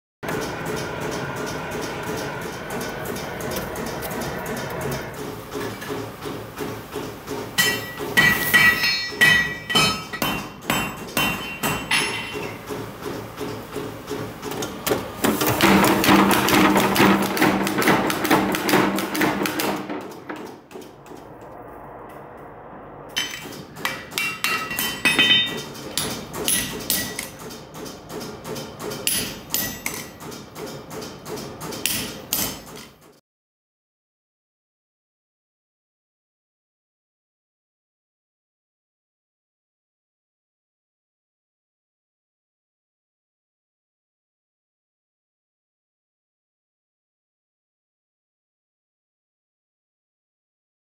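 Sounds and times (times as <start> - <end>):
power hammer pounding: 0.2 - 21.4, 23.2 - 32.9
hammer striking ringing anvil: 7.6 - 12.6, 23.1 - 27.3, 29.1 - 30.2.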